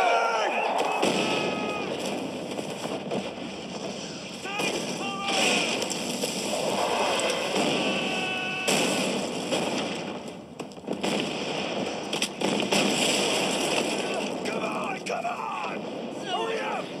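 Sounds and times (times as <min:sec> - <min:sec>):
shell explosions: 0:00.0 - 0:17.0
hiss of flying debris: 0:05.4 - 0:08.2.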